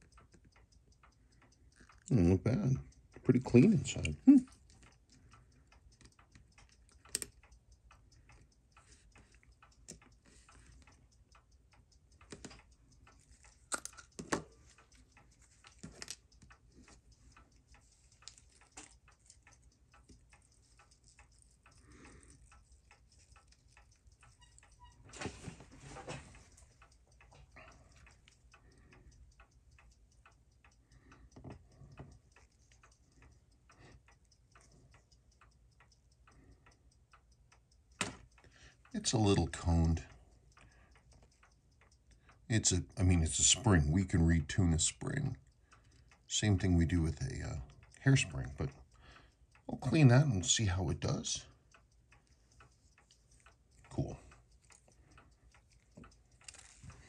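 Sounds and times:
faint steady ticking: 0:00.0 - 0:57.0
small scraping clicks: 0:02.9 - 0:42.4, 0:51.0 - 0:57.0.

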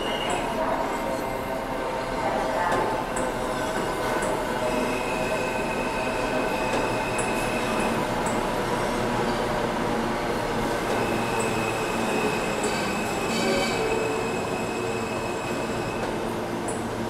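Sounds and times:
train wheels rumbling on rail: 0:00.0 - 0:17.0
high wheel squeal: 0:11.0 - 0:16.0.

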